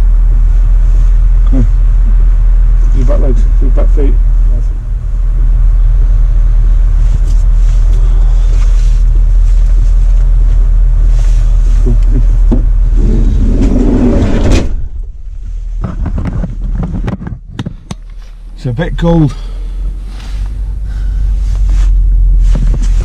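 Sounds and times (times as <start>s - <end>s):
wind buffeting microphone: 12.3s - 18.0s
sliding van door slamming: 12.4s - 15.4s.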